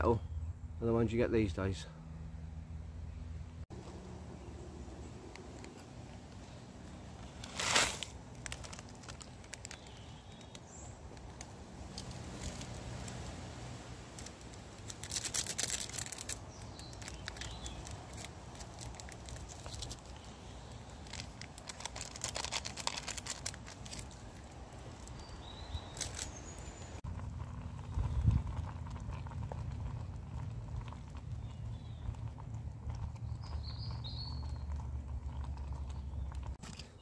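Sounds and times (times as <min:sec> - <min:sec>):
crackling: 0:03.7 - 0:37.0
faint bird chirps: 0:33.2 - 0:34.7.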